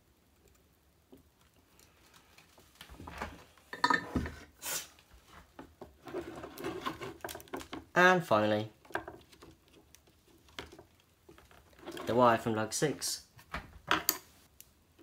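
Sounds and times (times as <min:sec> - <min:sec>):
brief hiss: 0:04.6 - 0:05.0
hands handling tools and wiring: 0:05.3 - 0:08.0, 0:08.8 - 0:12.2.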